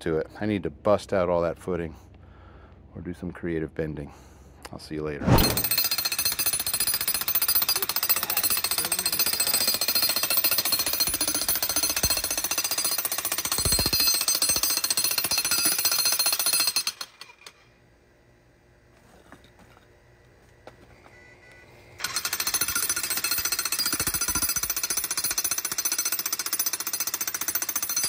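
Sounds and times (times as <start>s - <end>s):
jackhammer breaking concrete: 5.5s - 17.6s, 22.0s - 28.0s.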